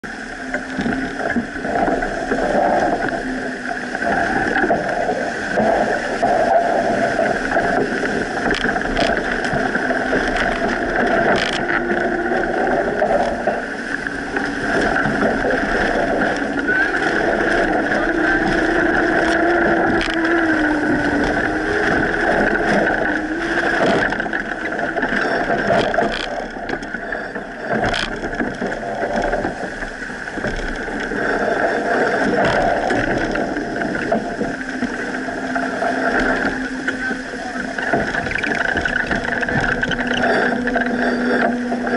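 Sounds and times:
wind and water rushing along hull: 0.0s - 41.9s
sharp knocks from boat: 7.2s - 12.2s, 13.2s - 31.3s, 32.2s - 41.9s.

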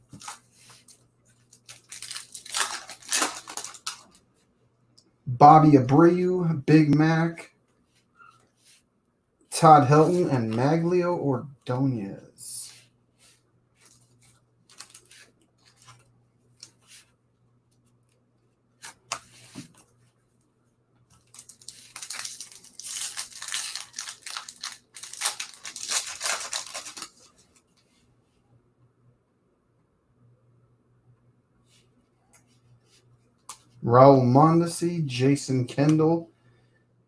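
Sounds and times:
cards clicking and rustling: 0.1s - 4.2s, 21.1s - 27.6s
foil wrapper tearing and crinkling: 1.5s - 4.2s, 14.7s - 15.8s, 21.2s - 27.3s.

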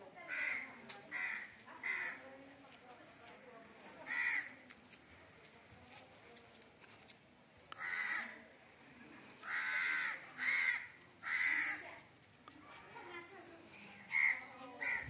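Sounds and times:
crow cawing: 0.3s - 2.2s, 4.0s - 4.6s, 7.8s - 8.4s, 9.4s - 11.9s, 14.1s - 15.0s.

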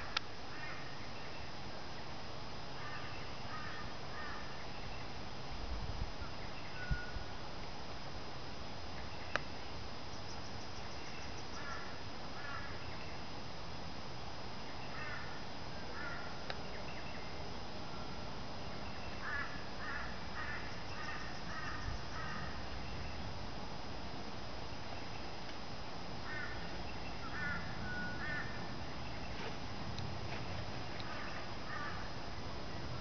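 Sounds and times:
crow cawing: 2.8s - 4.5s, 11.5s - 12.8s, 14.9s - 16.4s, 19.2s - 22.6s, 26.2s - 28.7s, 31.0s - 32.1s
faint high-pitched tone: 6.2s - 7.4s, 27.1s - 28.6s.

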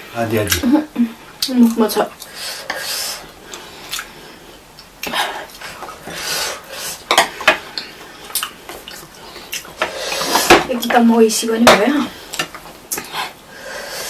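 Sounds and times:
chopsticks tapping on plate: 7.1s - 7.9s.

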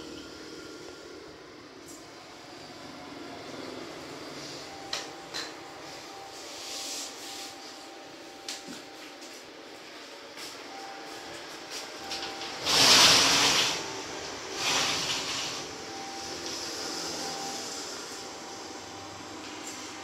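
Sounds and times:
aquarium pump water hissing: 12.4s - 20.0s.

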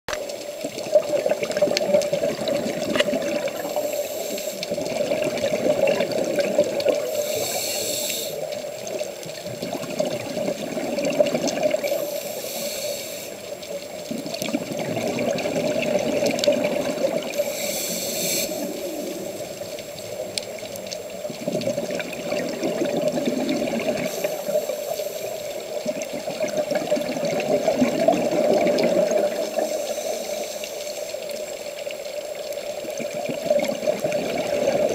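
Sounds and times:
muffled rush of water and bubbles: 0.1s - 34.9s
regulator breathing hiss: 3.5s - 5.0s, 6.9s - 8.9s, 11.8s - 13.8s, 17.3s - 20.3s, 24.0s - 25.9s, 29.3s - 31.9s.

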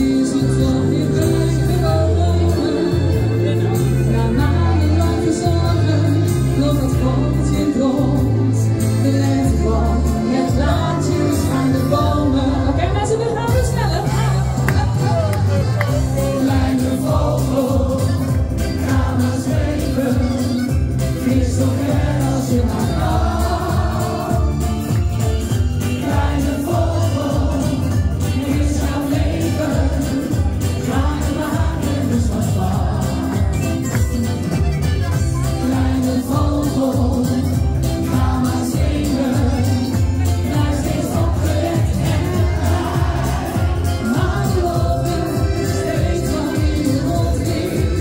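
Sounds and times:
backing track with bass line: 0.0s - 48.0s
voices singing along: 0.0s - 48.0s
woman singing into a microphone: 4.1s - 14.9s.

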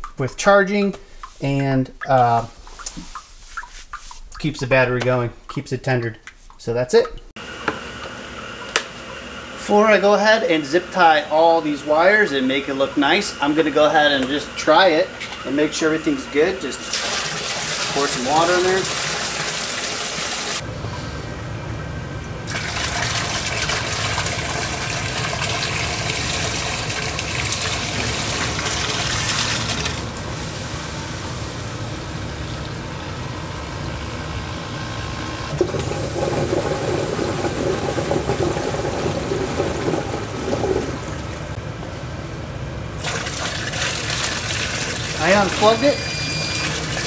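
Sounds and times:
water gushing into a pit: 16.8s - 20.6s, 22.5s - 32.7s, 35.5s - 41.6s, 43.0s - 47.0s.

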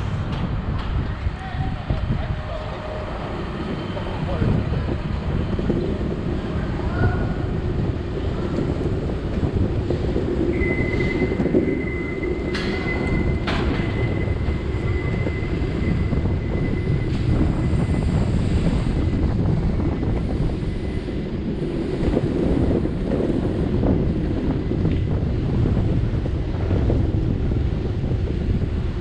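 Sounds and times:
road rumble: 0.0s - 29.0s
wind buffeting microphone: 0.0s - 29.0s
thin high whine: 10.4s - 23.2s.

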